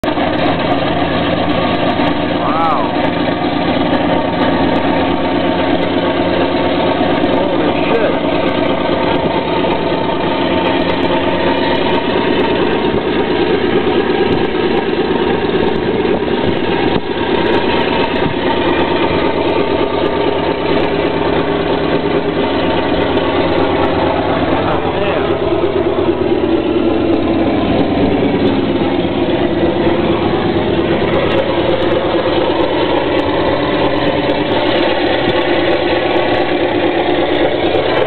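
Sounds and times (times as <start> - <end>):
radial aircraft engine running: 0.0 - 38.0.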